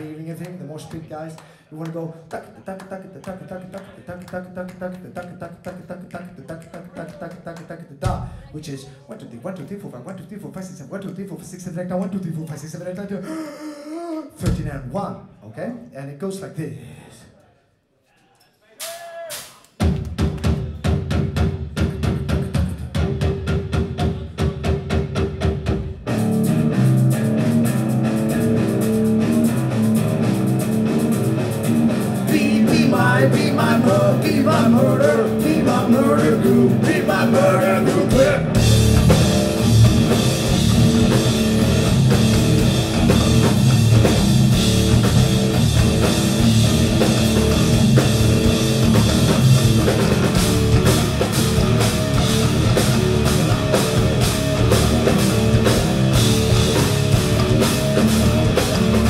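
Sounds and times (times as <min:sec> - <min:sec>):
heavy rock band playing: 0:20.9 - 0:59.0.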